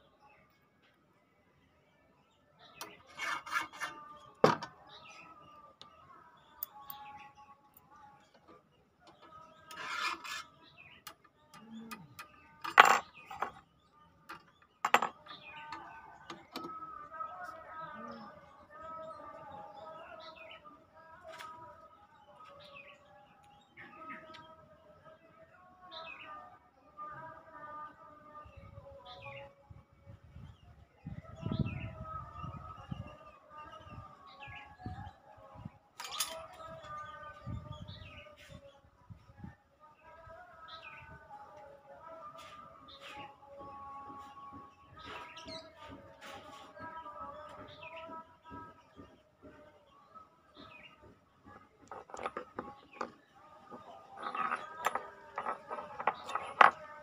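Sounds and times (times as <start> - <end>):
birds chirping and calling: 2.6 - 25.3, 30.4 - 39.3, 42.4 - 57.0
steel file scraping metal: 2.8 - 4.1, 9.6 - 10.8
low knocking and handling sounds: 3.2 - 4.9, 12.2 - 13.6, 51.0 - 57.0.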